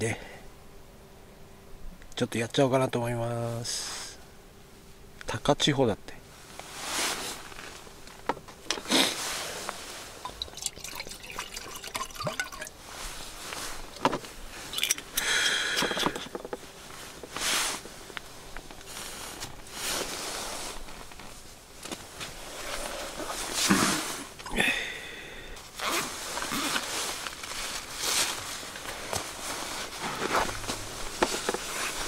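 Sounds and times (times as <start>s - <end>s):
liquid pouring into metal mug: 10.2s - 12.8s
bottle clicks and knocks: 10.3s - 12.7s.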